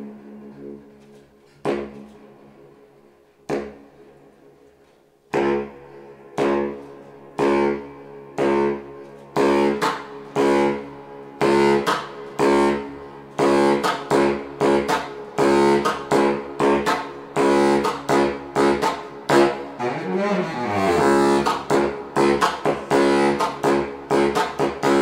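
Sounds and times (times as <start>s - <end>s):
baritone saxophone short notes: 11.4s - 25.0s.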